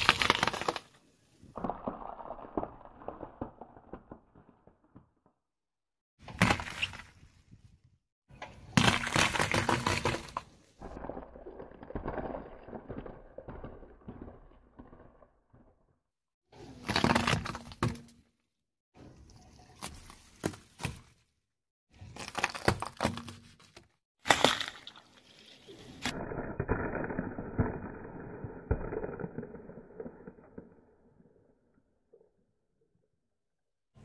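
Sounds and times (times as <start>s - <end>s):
eggshells crunching under tyre: 0.0s - 5.0s, 8.6s - 15.6s, 22.0s - 25.3s
car tyre crushing objects: 0.0s - 5.2s, 8.3s - 15.8s, 16.7s - 18.3s, 21.9s - 25.2s.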